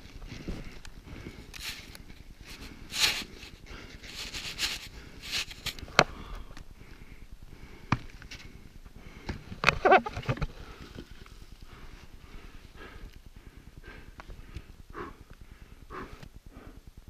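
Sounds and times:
short breaths: 0:10.5 - 0:16.9.

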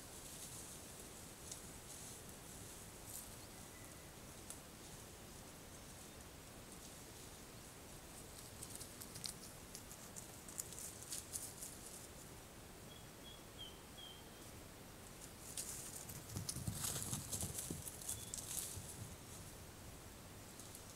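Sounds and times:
crackling and rustling undergrowth: 0:00.0 - 0:12.7, 0:14.4 - 0:20.9
faint bird chirps: 0:03.2 - 0:04.2, 0:12.8 - 0:14.6, 0:18.0 - 0:18.6.

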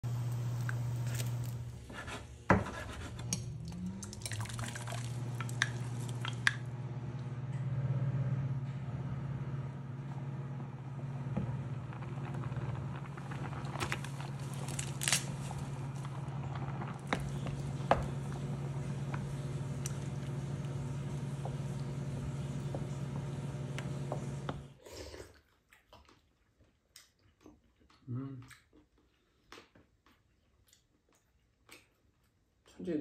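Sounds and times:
steady low hum: 0:00.0 - 0:24.7
spoon scraping a pot: 0:01.8 - 0:03.6
liquid simmering: 0:03.3 - 0:07.2, 0:10.0 - 0:24.6.

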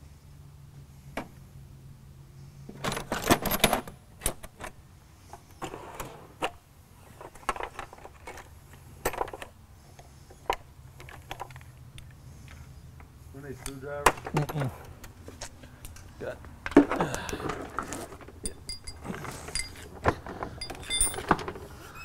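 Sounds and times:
metal tools clinking: 0:17.8 - 0:22.0.

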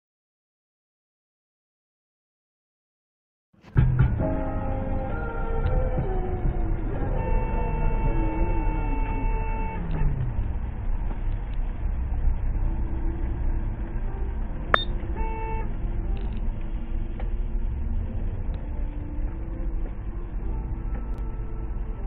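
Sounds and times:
road and engine rumble: 0:03.6 - 0:22.0
car horn: 0:06.8 - 0:10.2, 0:14.8 - 0:15.8.

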